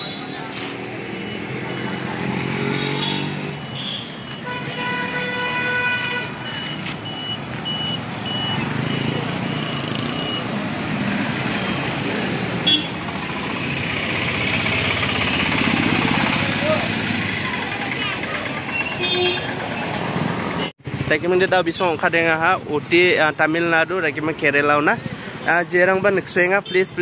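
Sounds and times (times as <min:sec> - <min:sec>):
street traffic engines: 0:00.0 - 0:27.0
vehicle horn: 0:02.7 - 0:06.4, 0:12.6 - 0:13.0, 0:19.0 - 0:19.6
short high-pitched beeps: 0:06.4 - 0:10.5.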